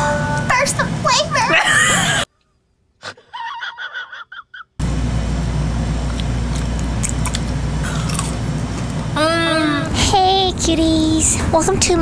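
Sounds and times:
man chuckling: 3.0 - 4.8.

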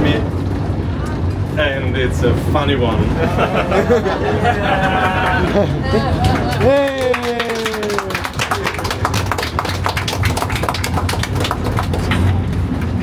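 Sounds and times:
tram rumbling: 0.0 - 13.0
people cheering: 3.5 - 12.3
small group clapping: 4.8 - 13.0.

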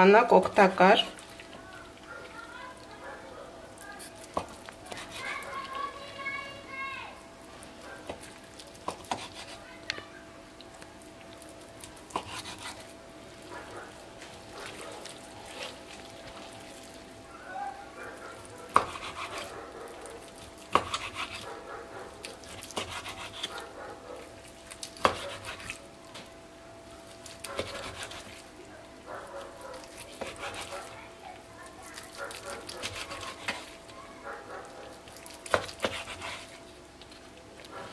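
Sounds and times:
knife slicing meat: 4.0 - 5.6, 8.0 - 9.7, 12.1 - 12.9, 18.7 - 19.6, 20.7 - 21.6, 22.2 - 24.3, 24.9 - 25.8, 27.2 - 28.5, 29.4 - 31.0, 32.0 - 33.8, 35.2 - 36.6.

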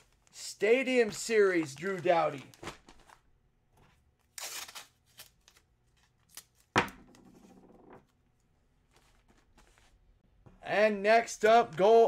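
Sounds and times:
packaging rustling: 1.0 - 3.3.

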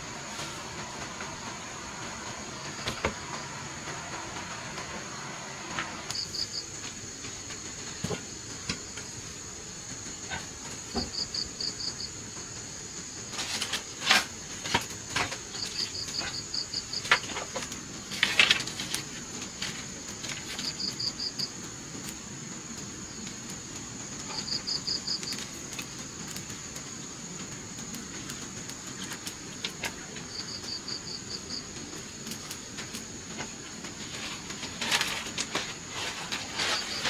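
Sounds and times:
insects chirping: 0.0 - 37.0.

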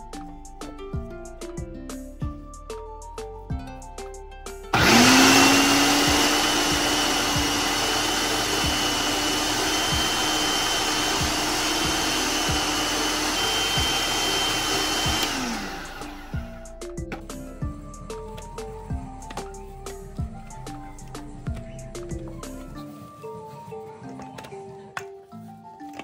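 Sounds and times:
food processor motor humming: 4.7 - 16.7
blade grinding meat: 4.8 - 16.6.

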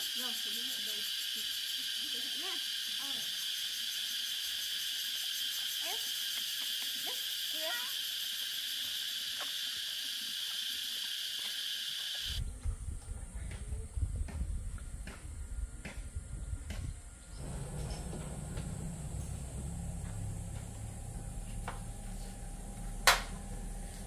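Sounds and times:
insects chirring: 0.0 - 12.4.

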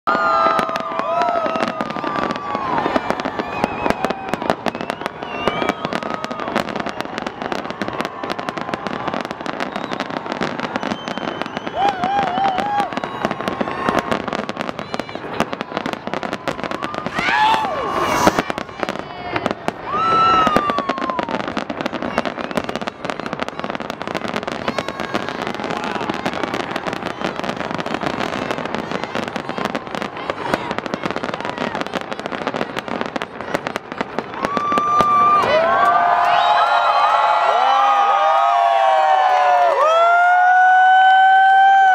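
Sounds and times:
fireworks bangs and crackles: 0.1 - 41.9.

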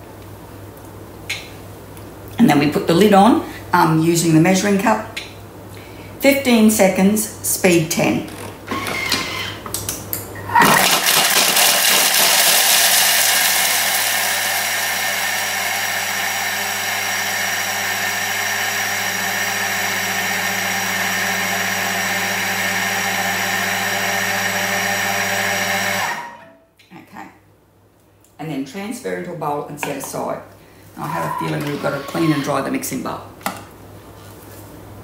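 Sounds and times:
food processor grinding cheese: 10.6 - 26.3, 31.1 - 32.5.

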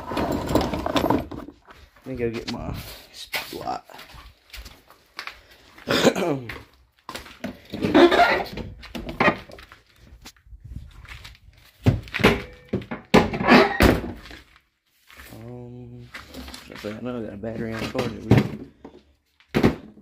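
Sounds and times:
objects thunking and knocking: 0.0 - 2.0, 6.5 - 9.7, 11.8 - 14.5, 17.5 - 20.0.

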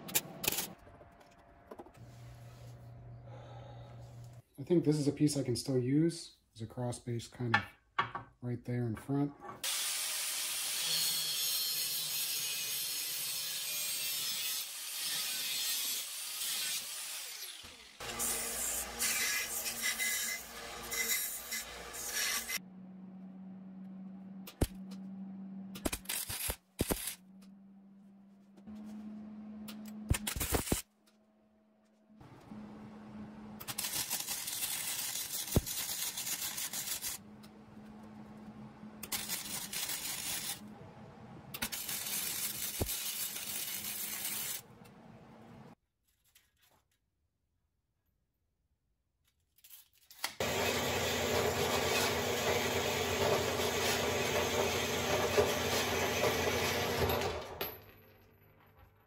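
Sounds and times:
angle grinder cutting steel: 9.6 - 22.6, 50.4 - 57.4
low hum: 22.6 - 26.1
welder crackling: 25.8 - 27.2, 30.1 - 30.9, 33.6 - 37.6, 39.0 - 40.6, 41.5 - 44.7.

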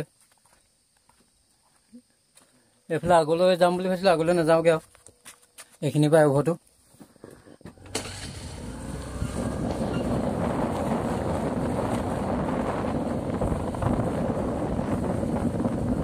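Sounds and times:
motor scooter running: 7.7 - 16.0
wind buffeting microphone: 8.0 - 16.0.

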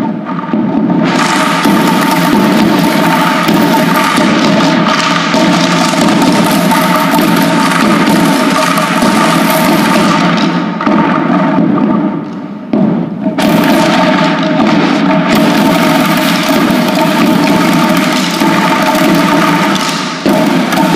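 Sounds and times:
children drumming on plastic buckets: 0.0 - 20.9.

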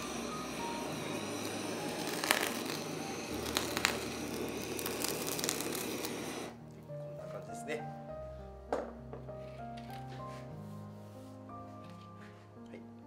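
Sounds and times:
sharp crackles: 0.0 - 6.5
gas torch running: 0.0 - 6.6.

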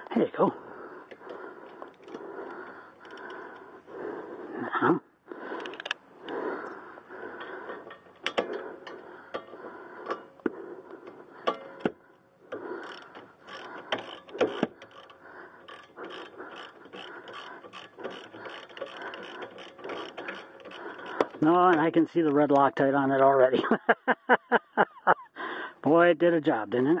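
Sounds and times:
ratchet wrench clicking: 12.8 - 21.4.

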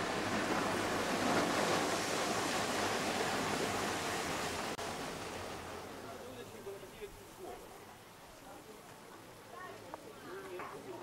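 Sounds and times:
waves washing against rocky shore: 0.0 - 6.8.

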